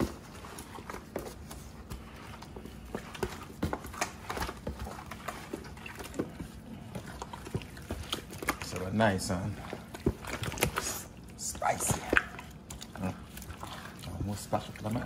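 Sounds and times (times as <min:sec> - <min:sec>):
wet squelches of marinated chicken: 0:00.2 - 0:15.0.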